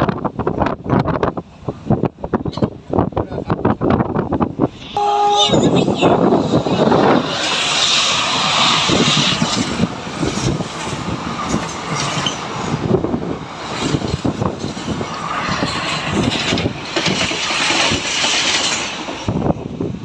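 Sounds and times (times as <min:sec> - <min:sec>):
passing train rumble: 0:00.0 - 0:20.0
air rushing through window: 0:05.8 - 0:11.5.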